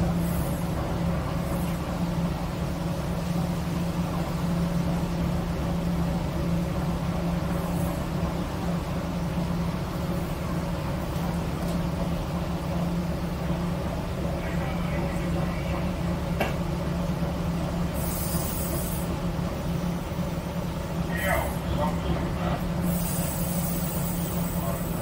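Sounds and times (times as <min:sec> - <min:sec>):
diesel engine low hum: 0:00.0 - 0:25.0.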